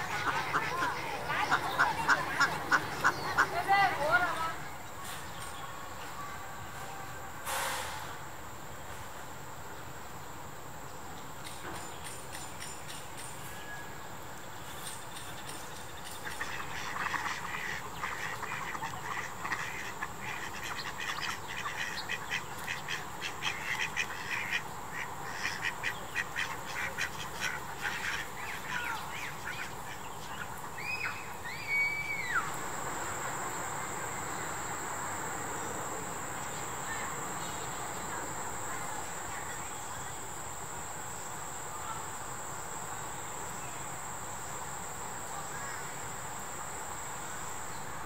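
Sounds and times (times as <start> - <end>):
ducks quacking: 0.0 - 4.3, 16.2 - 30.5
high-pitched insect trill: 11.8 - 48.0.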